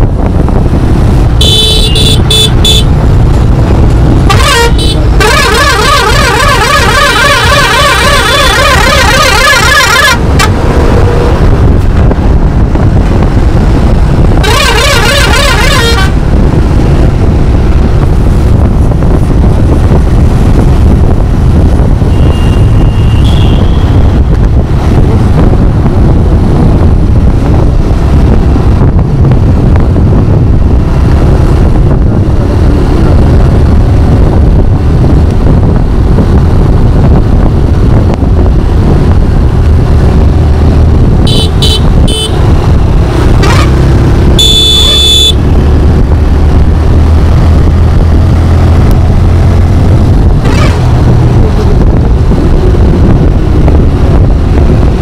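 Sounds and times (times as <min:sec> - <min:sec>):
wind and road noise: 0:00.0 - 0:55.0
warbling vehicle horn: 0:01.4 - 0:02.9, 0:04.2 - 0:10.5, 0:14.4 - 0:16.3, 0:22.1 - 0:24.0, 0:41.2 - 0:42.4, 0:44.4 - 0:45.4.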